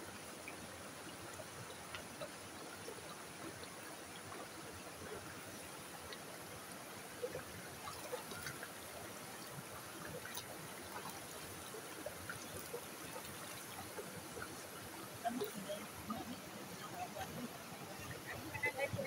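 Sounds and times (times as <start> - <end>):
creek running: 0.0 - 19.0
water splashing and trickling: 0.0 - 19.0.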